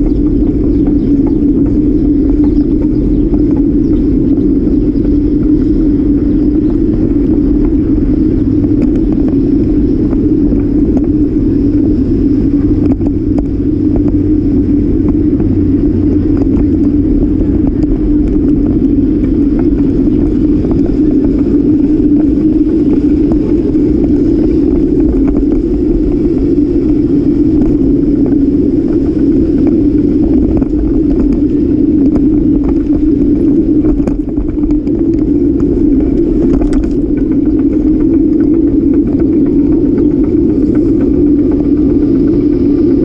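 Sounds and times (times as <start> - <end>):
small clicks and rattles: 27.5 - 43.0.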